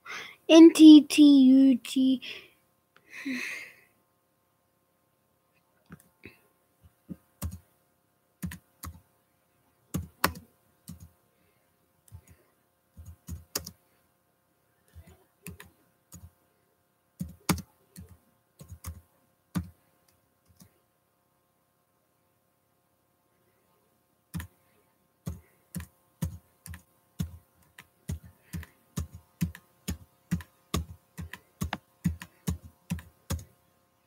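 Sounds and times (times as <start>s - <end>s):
computer keyboard typing: 7.4s - 7.6s, 8.4s - 9.0s, 9.9s - 11.1s, 12.1s - 12.4s, 13.0s - 13.8s, 14.9s - 16.3s, 17.2s - 19.8s, 24.4s - 24.6s, 25.2s - 33.6s.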